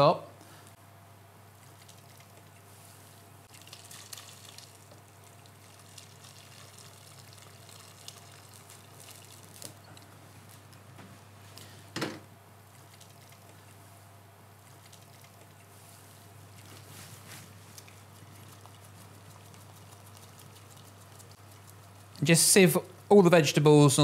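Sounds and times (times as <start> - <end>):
liquid trickling through sieve: 3.4 - 10.0.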